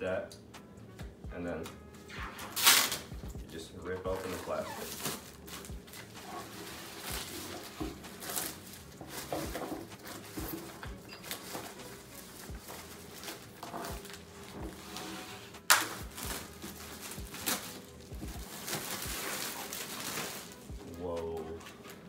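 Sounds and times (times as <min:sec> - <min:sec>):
plastic wrapping tearing and crinkling: 0:02.2 - 0:03.3, 0:03.9 - 0:22.0.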